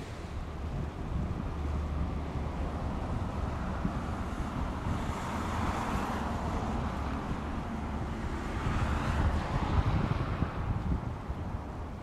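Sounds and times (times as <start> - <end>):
turboprop plane droning overhead: 0.0 - 12.0
wind rumble on microphone: 0.0 - 12.0.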